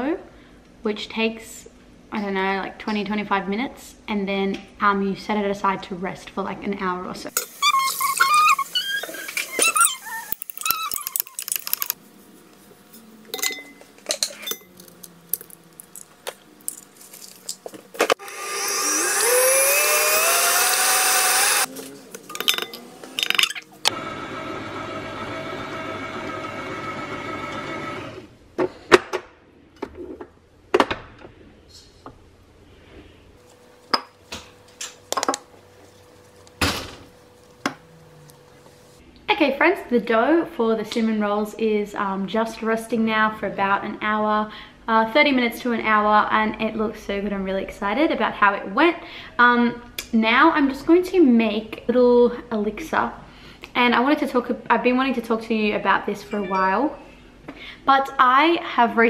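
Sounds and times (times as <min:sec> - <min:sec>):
bowls knocking and clinking: 0:22.2 - 0:23.6.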